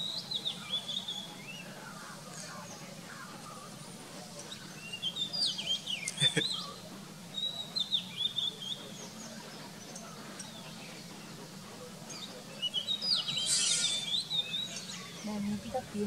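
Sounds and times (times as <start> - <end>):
bird singing whistled notes: 0.0 - 2.0, 4.3 - 11.1, 12.1 - 15.9.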